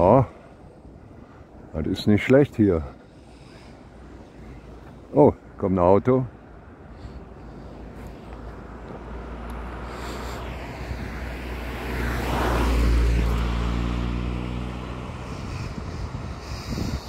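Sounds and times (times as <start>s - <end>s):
car driving past: 8.6s - 16.9s.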